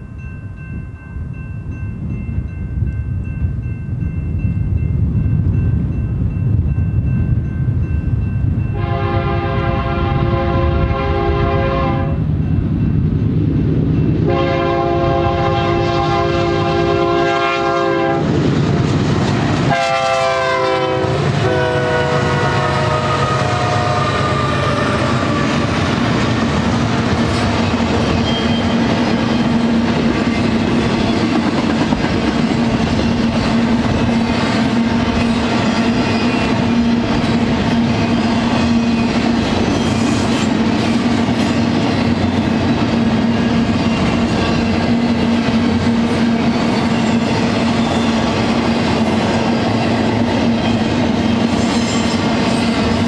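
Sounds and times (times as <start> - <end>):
diesel locomotive engines: 0.0 - 53.0
train wheels rumbling and clattering: 2.0 - 53.0
locomotive air horn blasts: 8.8 - 12.2, 14.2 - 18.3, 19.7 - 25.4.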